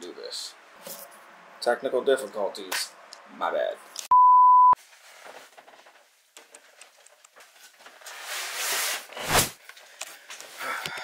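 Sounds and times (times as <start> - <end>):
steady test beep: 4.1 - 4.8.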